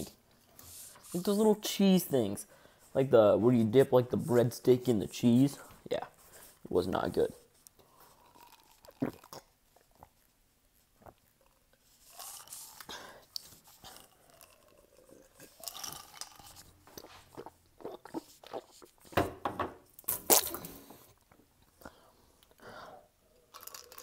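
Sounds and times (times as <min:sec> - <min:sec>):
person sipping from a glass: 0:07.8 - 0:09.5, 0:11.0 - 0:19.0, 0:23.3 - 0:24.0
chewing mouth sounds: 0:08.0 - 0:10.3, 0:11.0 - 0:19.1.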